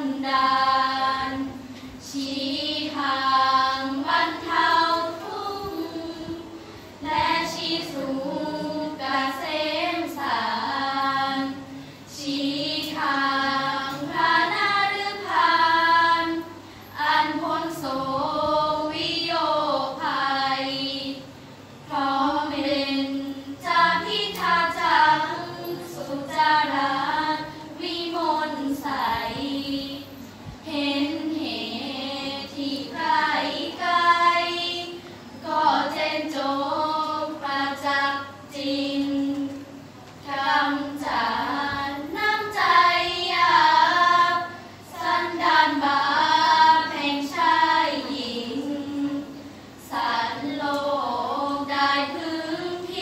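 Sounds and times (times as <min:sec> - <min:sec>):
girls chanting in unison: 0:00.0 - 0:39.6, 0:40.2 - 0:53.0.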